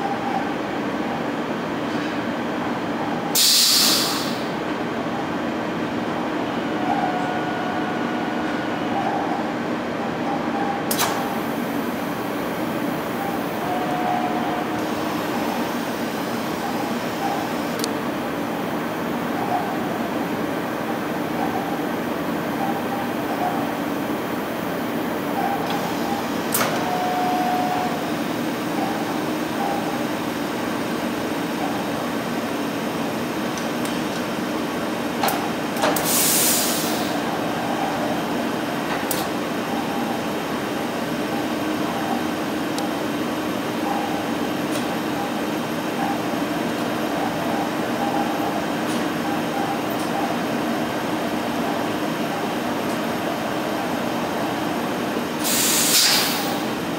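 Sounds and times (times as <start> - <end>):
machinery hum: 0.0 - 56.9
burst of hiss: 3.4 - 4.4, 55.4 - 56.6.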